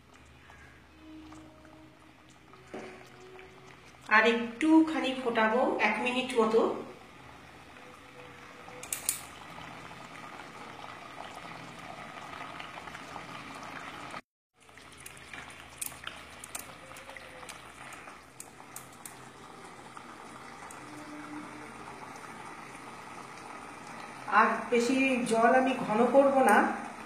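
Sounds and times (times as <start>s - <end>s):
thick sauce bubbling and popping: 9.0s - 24.3s.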